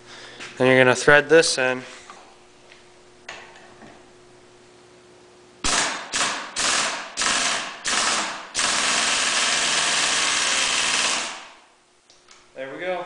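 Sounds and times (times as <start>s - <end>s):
pneumatic impact wrench hammering: 5.6s - 11.7s.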